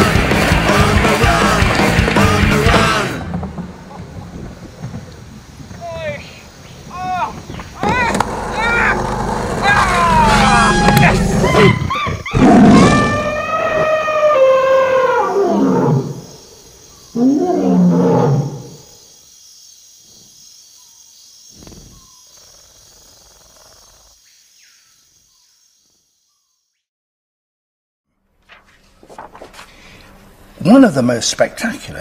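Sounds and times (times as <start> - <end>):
large animal roaring: 8.1 - 16.3, 17.2 - 18.8.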